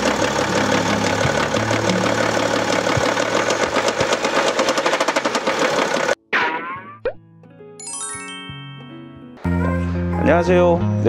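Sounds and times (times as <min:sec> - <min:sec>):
diesel engine idling: 0:00.0 - 0:06.2
loud metallic engine knocking: 0:00.0 - 0:06.2.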